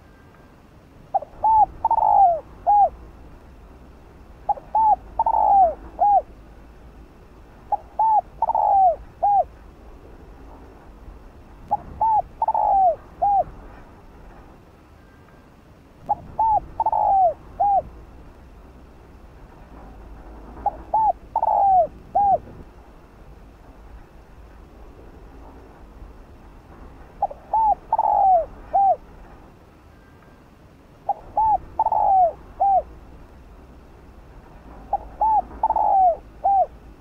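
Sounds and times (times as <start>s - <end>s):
dove cooing: 1.1s - 3.0s, 4.4s - 6.4s, 7.6s - 9.6s, 11.7s - 13.6s, 16.1s - 18.0s, 20.6s - 22.6s, 27.2s - 29.1s, 31.0s - 33.0s, 34.8s - 36.9s.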